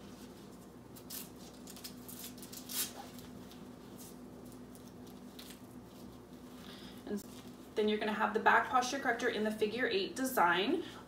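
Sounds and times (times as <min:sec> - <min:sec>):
faint steady hum: 0:00.0 - 0:11.0
velcro strap scratching: 0:00.5 - 0:06.2.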